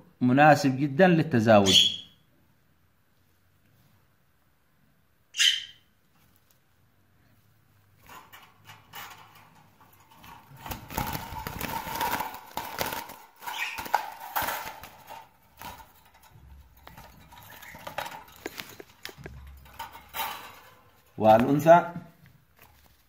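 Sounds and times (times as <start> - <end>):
wire birdcage rattling and clanking: 8.0 - 21.8.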